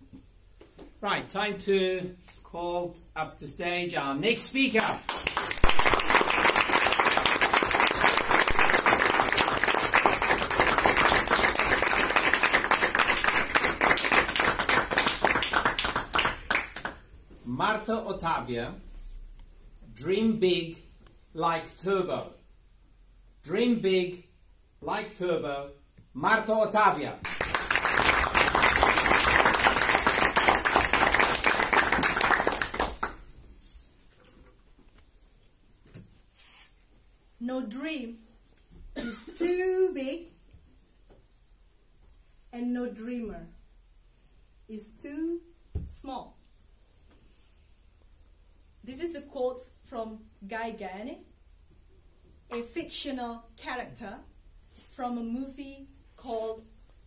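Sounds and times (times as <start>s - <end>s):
audience applauding: 5.1s - 17.0s, 27.2s - 33.2s.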